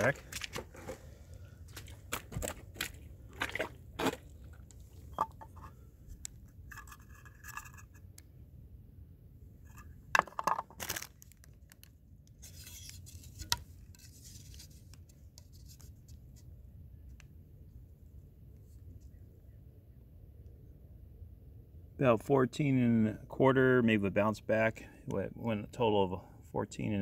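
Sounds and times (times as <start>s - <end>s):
rustling and scraping: 0.0s - 8.2s, 9.6s - 16.5s
handling knocks and taps: 5.1s - 5.7s.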